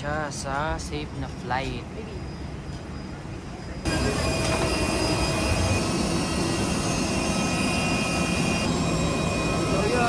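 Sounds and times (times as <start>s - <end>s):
jet engines running: 3.1s - 10.0s.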